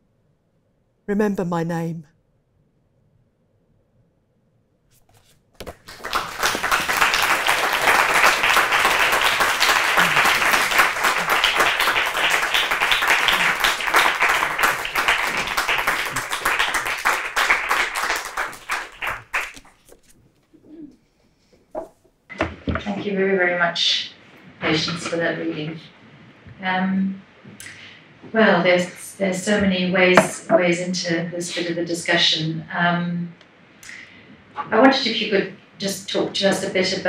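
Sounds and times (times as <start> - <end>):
audience applauding: 5.6 - 19.8.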